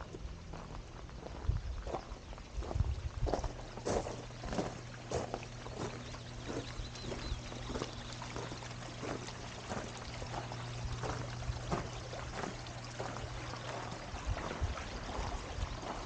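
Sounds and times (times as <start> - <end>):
footsteps walking: 0.0 - 16.0
low hum: 0.0 - 16.0.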